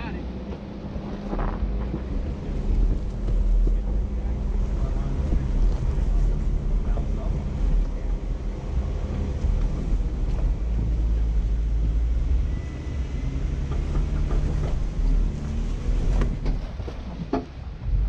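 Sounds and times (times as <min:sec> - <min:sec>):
engine low rumble: 0:00.0 - 0:18.0.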